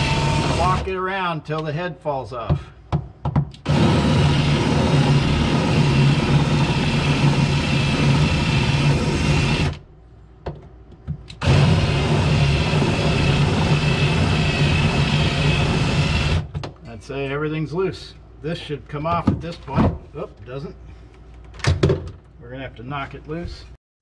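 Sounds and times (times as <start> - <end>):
cordless drill drilling metal: 0.0 - 0.9, 3.6 - 9.8, 11.3 - 16.5
drill click: 0.0 - 0.9.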